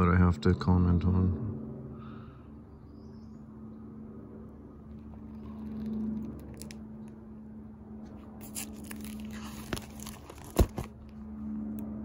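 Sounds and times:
steady low hum: 0:00.0 - 0:12.0
plastic sleeves crinkling: 0:04.9 - 0:07.2, 0:08.4 - 0:11.0.

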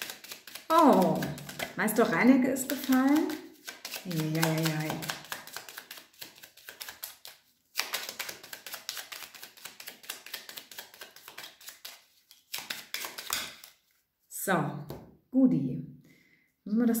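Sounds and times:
cards being shuffled: 0:00.0 - 0:13.9.

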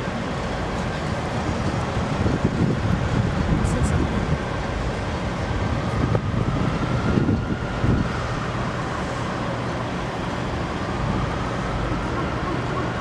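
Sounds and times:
vehicles rumbling: 0:00.0 - 0:13.0
wind buffeting the microphone: 0:01.1 - 0:08.8.

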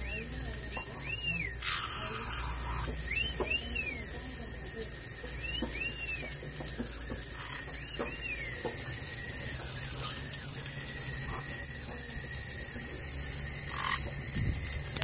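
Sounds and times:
parrot chirps: 0:00.0 - 0:04.1, 0:13.6 - 0:14.1
hose water splashing on concrete: 0:00.0 - 0:15.0.

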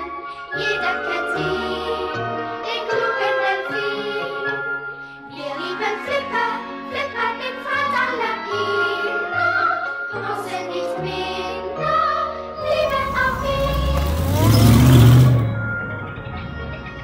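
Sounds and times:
music with singing and bass: 0:00.0 - 0:17.0
car driving past: 0:12.6 - 0:17.0
engine and tyre noise: 0:12.6 - 0:17.0.

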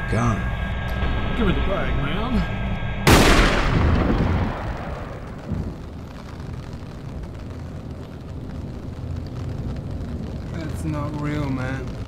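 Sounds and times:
low steady rumble: 0:00.0 - 0:12.0
gunshot echo: 0:03.0 - 0:05.6.

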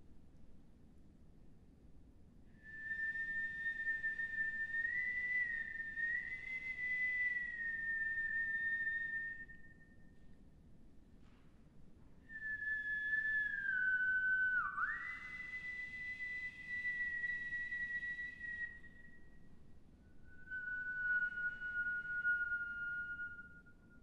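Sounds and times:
woman whistling long clear notes: 0:02.6 - 0:10.2, 0:12.2 - 0:24.0.

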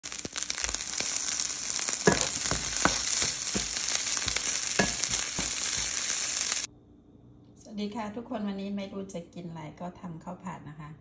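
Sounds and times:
rice sizzling in a frying pan: 0:00.0 - 0:06.7
spatula scraping a pan: 0:00.7 - 0:06.6.

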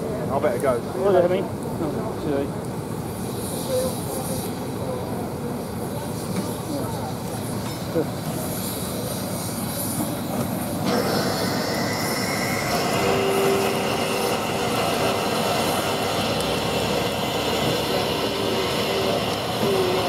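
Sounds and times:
steam hissing: 0:00.3 - 0:20.0.

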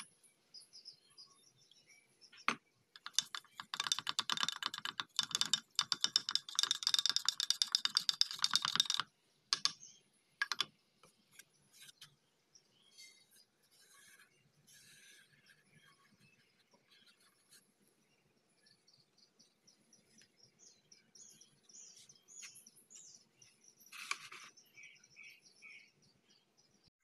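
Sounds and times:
paintbrush tapping against glass: 0:03.0 - 0:09.8, 0:10.4 - 0:10.7.

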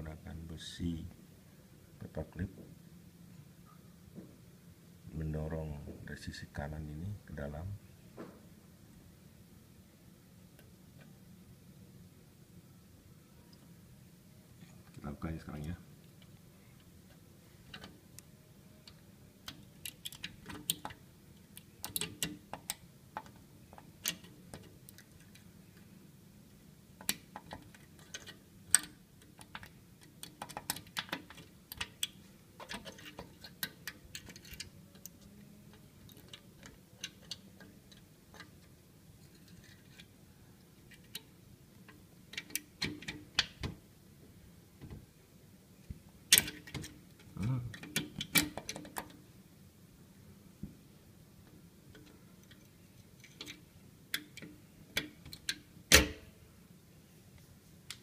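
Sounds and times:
small metallic clicks in a lock: 0:18.8 - 0:25.5, 0:27.0 - 0:38.7, 0:41.9 - 0:43.8, 0:46.3 - 0:47.0, 0:47.7 - 0:49.2, 0:51.9 - 0:56.3.

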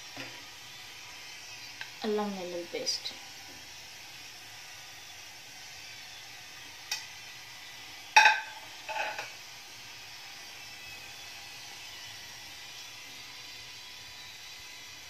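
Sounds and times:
gas stove burner hissing: 0:00.0 - 0:15.0
metal kitchenware clinking: 0:08.2 - 0:09.2.

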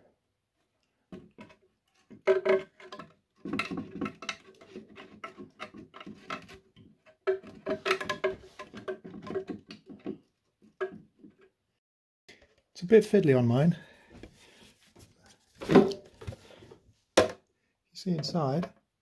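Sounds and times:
plastic cowl rubbing and clicking: 0:01.4 - 0:10.3.

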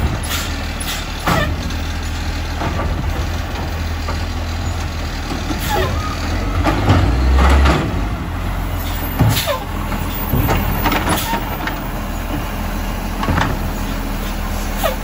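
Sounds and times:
diesel engine rumbling: 0:00.0 - 0:15.0
hydraulic arm knocks and clunks: 0:01.0 - 0:08.3, 0:08.9 - 0:12.5, 0:13.2 - 0:13.8.

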